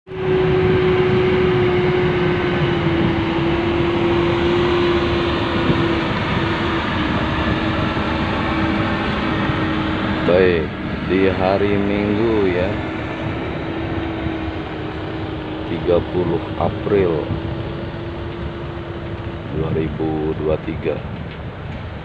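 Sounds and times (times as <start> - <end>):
heavy machinery engine drone: 0.0 - 22.0.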